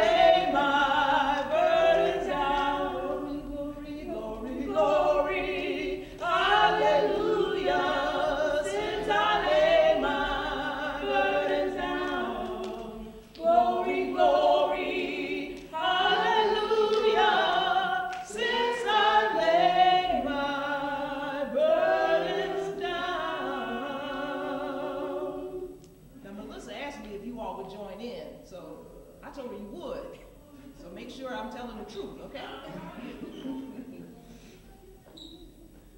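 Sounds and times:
women singing a hymn: 0.0 - 26.1.

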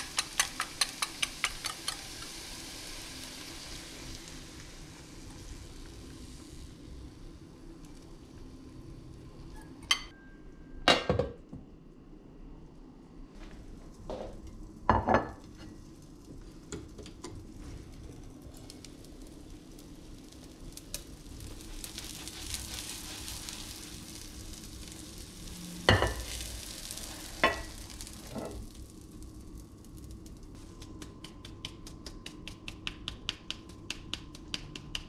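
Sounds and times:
omelette sizzling in a frying pan: 0.0 - 9.8, 13.8 - 31.1
plate set down on countertop: 10.9 - 11.4.

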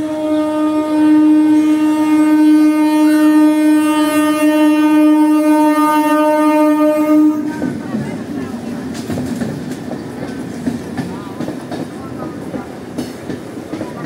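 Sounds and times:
loud steady horn blast: 0.0 - 7.8.

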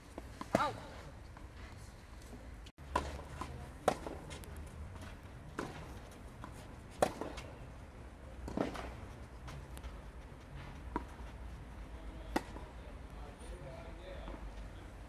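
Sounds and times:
tennis ball struck by rackets: 2.8 - 4.4, 5.5 - 7.6, 12.2 - 12.7.

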